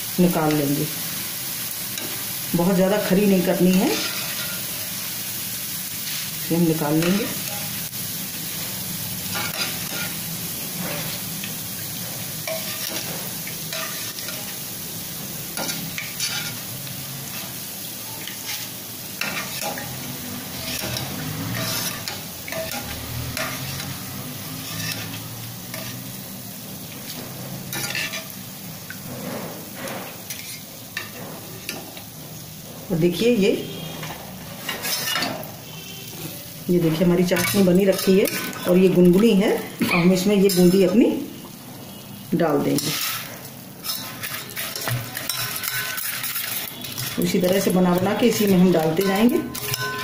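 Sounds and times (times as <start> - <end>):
batter frying in hot oil: 0.0 - 50.0
metal ladle scraping pan: 3.5 - 4.9, 9.2 - 14.8, 15.4 - 26.2, 27.0 - 32.0, 33.6 - 41.0, 42.6 - 50.0.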